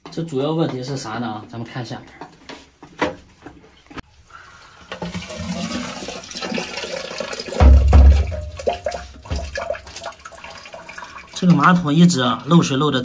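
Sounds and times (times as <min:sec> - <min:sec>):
toilet flushing: 0:04.4 - 0:12.5.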